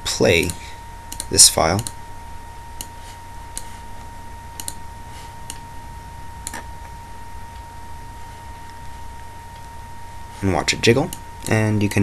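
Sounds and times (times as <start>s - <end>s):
faint steady tone: 0.0s - 12.0s
low electrical hum: 0.0s - 12.0s
computer mouse clicking: 0.4s - 2.0s, 4.6s - 4.8s.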